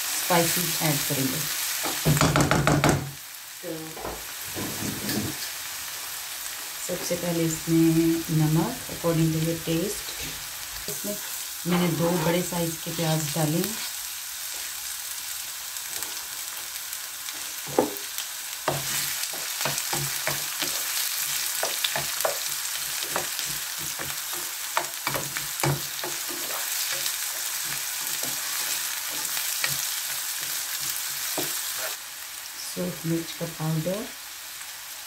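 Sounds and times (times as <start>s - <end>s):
onions sizzling in hot oil: 0.0s - 35.0s
utensil scraping against pan: 11.7s - 12.5s.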